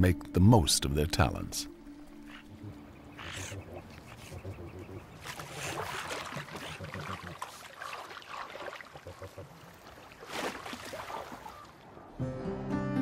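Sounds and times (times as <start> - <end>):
water splashing and sloshing: 1.8 - 12.2
animal grunts: 2.4 - 7.6
soft plucked guitar music: 12.2 - 13.0.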